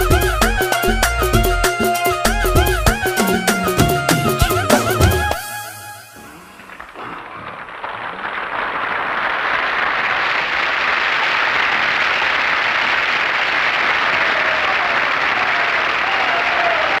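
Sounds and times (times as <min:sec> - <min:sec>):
audience applause: 0:06.2 - 0:17.0.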